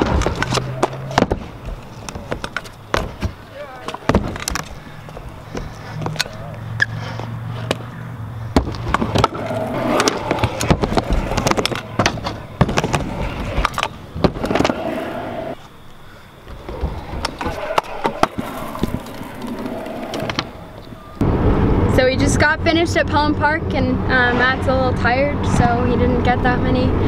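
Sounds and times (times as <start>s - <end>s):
scooter clacking on ramps: 0.0s - 6.3s, 8.5s - 14.9s, 16.5s - 20.9s
scooter wheels hissing on ramps: 8.8s - 15.7s.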